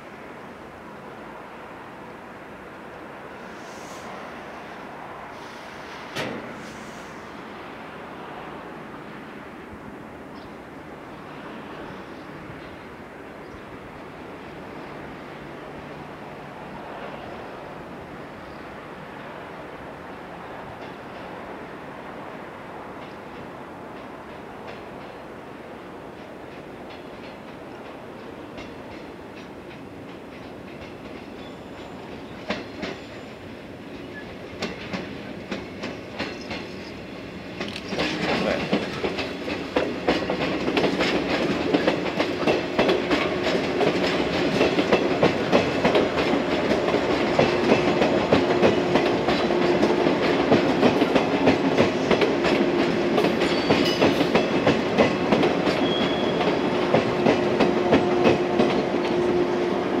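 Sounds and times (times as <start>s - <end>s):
train hum: 0.0s - 60.0s
train wheels clacking over rail joints: 26.1s - 60.0s.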